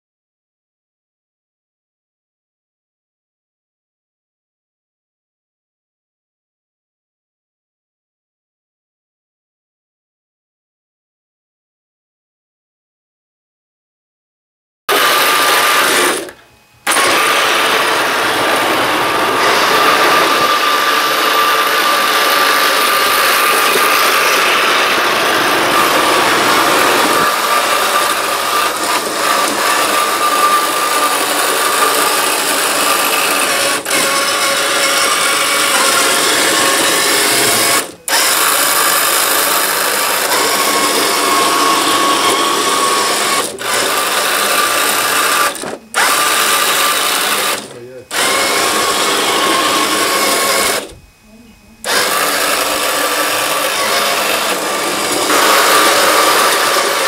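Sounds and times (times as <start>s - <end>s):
toy tank tracks running: 14.9s - 51.0s, 51.8s - 57.0s
electric motors whining: 14.9s - 57.0s.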